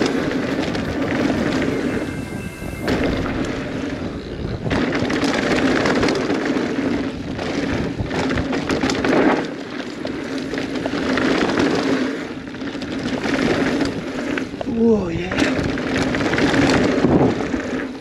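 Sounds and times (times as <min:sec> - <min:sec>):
bike rattling and knocking: 0:00.0 - 0:18.0
wind buffeting microphone: 0:00.0 - 0:18.0.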